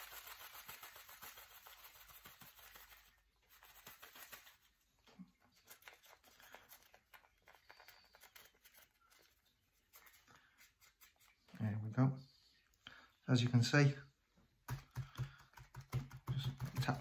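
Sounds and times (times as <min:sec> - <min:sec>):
pellets rustling and clicking: 0:00.0 - 0:11.6.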